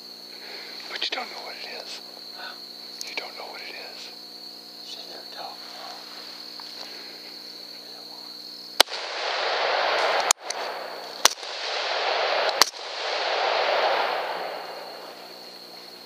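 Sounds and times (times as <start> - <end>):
rifle shots: 8.8 - 15.7
rushing echo after shots: 8.8 - 16.0.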